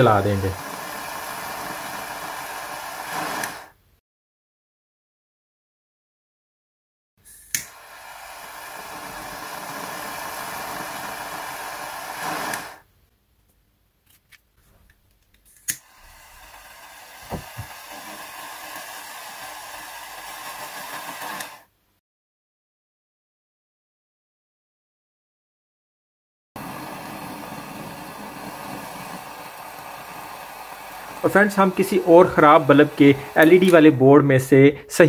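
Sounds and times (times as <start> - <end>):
jet flame hissing: 0.0 - 3.8, 7.2 - 12.9, 15.5 - 21.7, 26.6 - 35.0
torch lighter click: 0.6 - 3.7, 7.3 - 7.8, 12.1 - 12.8, 15.4 - 21.7, 31.8 - 34.0.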